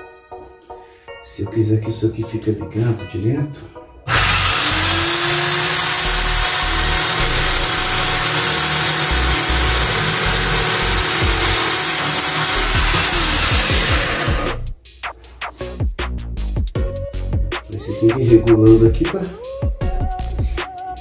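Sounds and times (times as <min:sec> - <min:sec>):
electric drill whining: 0:04.1 - 0:14.7.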